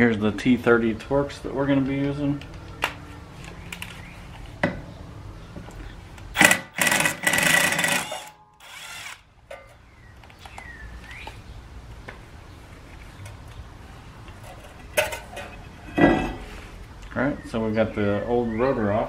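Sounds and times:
cordless driver running: 6.4 - 9.2.

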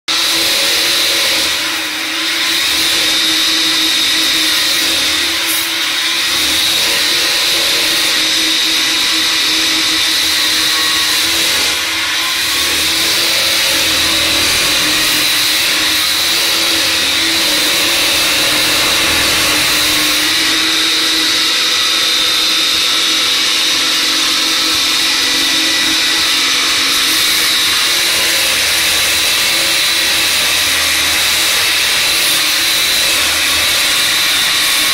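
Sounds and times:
sugarcane peeling machine whirring: 0.1 - 34.9.

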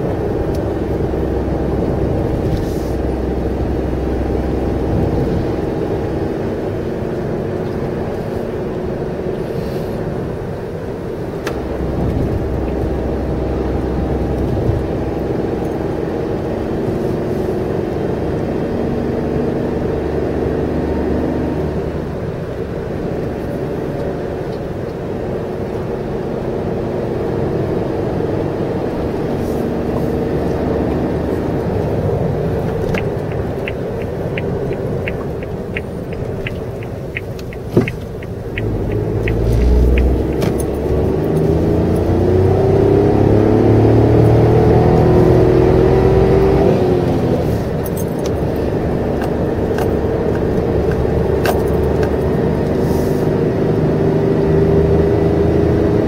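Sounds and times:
car engine running: 0.0 - 53.6
road noise: 0.0 - 56.0
light ticking: 32.6 - 41.4.

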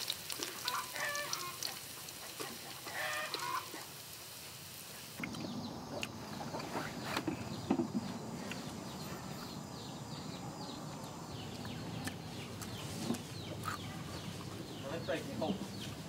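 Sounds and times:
birds chirping: 5.2 - 16.0.

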